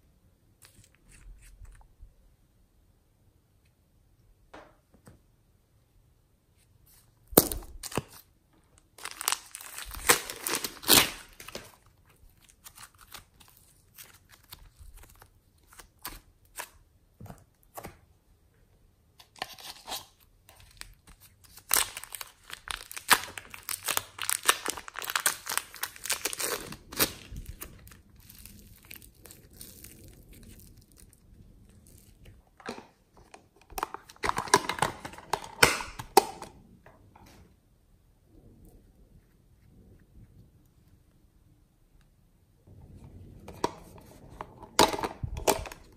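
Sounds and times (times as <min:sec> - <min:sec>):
plastic packaging crinkling and tearing: 0:07.4 - 0:16.8, 0:19.2 - 0:32.8, 0:33.6 - 0:36.2.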